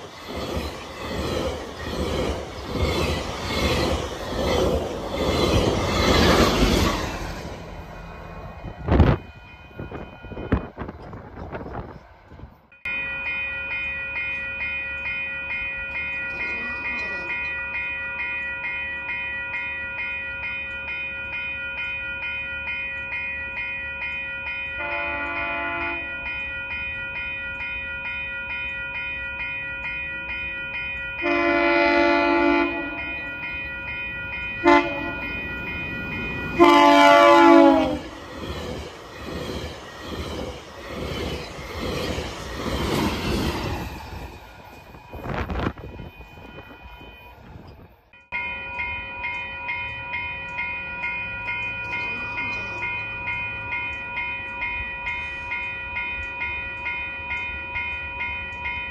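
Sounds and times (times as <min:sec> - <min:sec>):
train wheels rolling: 0:00.0 - 0:17.6, 0:32.2 - 0:58.9
level-crossing warning bells: 0:00.0 - 0:58.9
train horn blasts: 0:24.8 - 0:26.1, 0:31.2 - 0:33.1, 0:34.6 - 0:35.3, 0:36.6 - 0:38.2.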